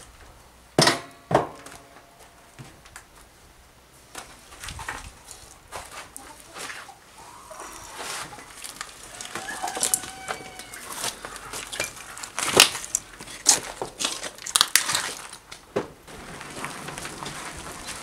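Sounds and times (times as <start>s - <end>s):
chickens clucking: 6.2s - 12.4s.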